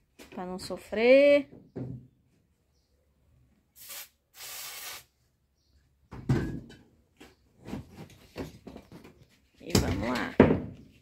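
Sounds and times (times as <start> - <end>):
aerosol can spraying: 3.8 - 5.1.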